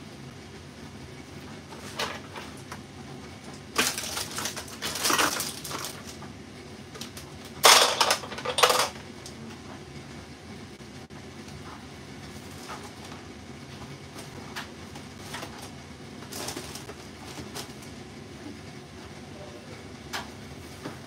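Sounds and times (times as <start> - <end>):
steady low hum: 0.0 - 21.0
kitchen items clattering: 1.7 - 2.8, 3.6 - 6.3, 7.0 - 9.1, 14.1 - 17.9.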